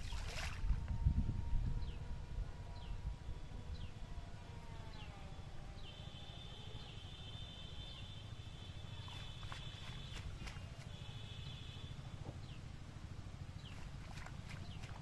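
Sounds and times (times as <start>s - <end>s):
wind rumble on microphone: 0.0s - 5.0s.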